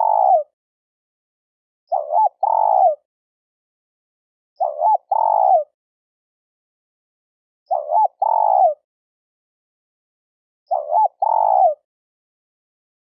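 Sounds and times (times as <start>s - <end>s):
dove cooing: 0.0s - 0.5s, 1.9s - 3.0s, 4.6s - 5.7s, 7.7s - 8.8s, 10.7s - 11.8s.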